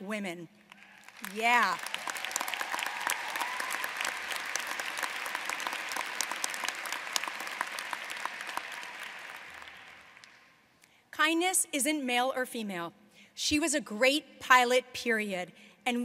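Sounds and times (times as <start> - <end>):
audience applauding: 0.7 - 10.6.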